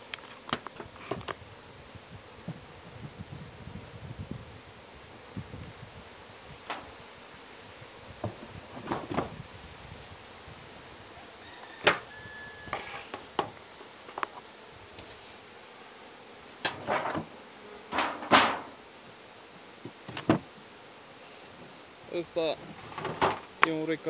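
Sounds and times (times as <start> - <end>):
wood knocking and scraping on wood: 8.2 - 9.3, 11.8 - 12.1, 12.7 - 14.4, 16.6 - 17.3, 17.9 - 18.8.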